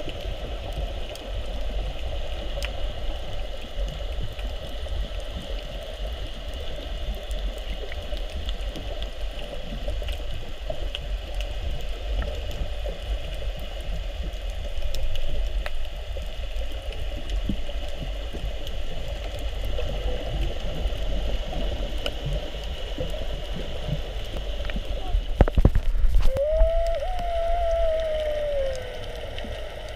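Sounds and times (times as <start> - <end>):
faint clicks and crackles: 0.0 - 29.9
underwater rumble with hiss: 0.0 - 29.9.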